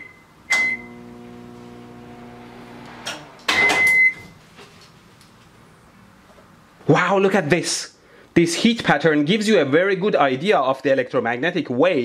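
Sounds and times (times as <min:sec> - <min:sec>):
microwave beep: 0:00.0 - 0:04.4
microwave humming: 0:00.0 - 0:04.4.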